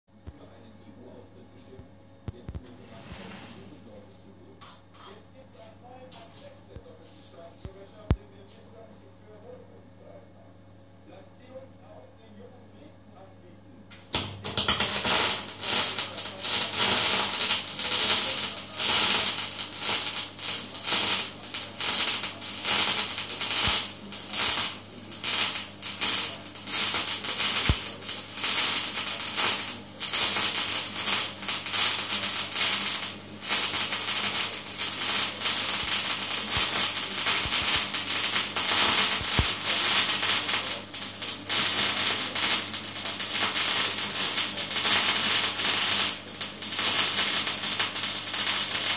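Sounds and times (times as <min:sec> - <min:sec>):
low steady hum: 0:00.1 - 0:44.2
welding arc crackling hiss: 0:13.9 - 0:48.9.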